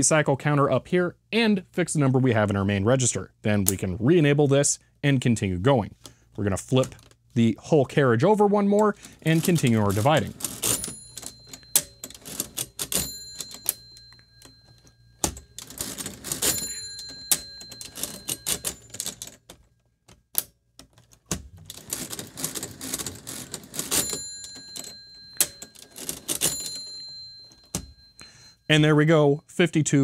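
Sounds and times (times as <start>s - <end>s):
mechanical calculator clattering: 8.8s - 19.7s, 20.8s - 28.2s.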